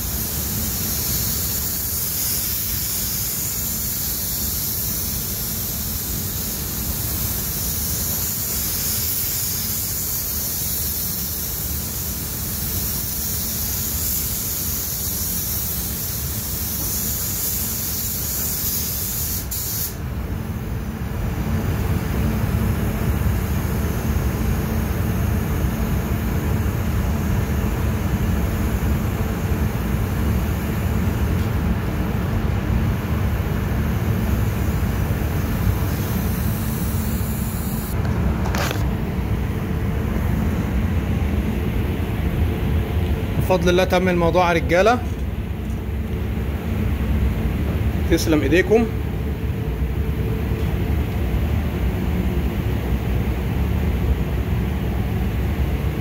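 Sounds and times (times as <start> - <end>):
spray gun hissing: 0.0 - 20.0, 33.9 - 38.0
low rumble of air system: 0.0 - 56.0.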